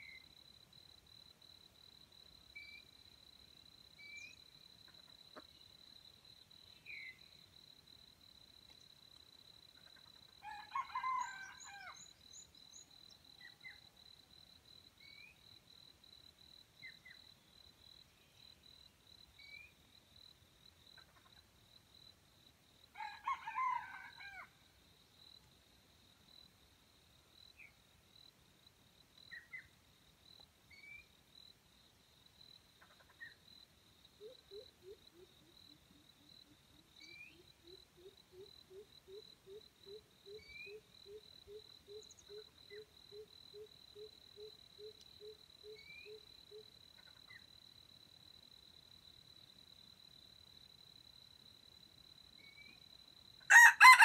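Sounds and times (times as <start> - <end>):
faint bird chirps: 0.0 - 0.4, 2.5 - 3.0, 3.9 - 5.8, 6.6 - 7.5, 15.0 - 15.5, 16.8 - 19.9, 29.2 - 29.8, 34.2 - 47.5, 52.4 - 52.8
rooster crowing: 10.4 - 12.0, 23.0 - 24.5, 53.5 - 54.0.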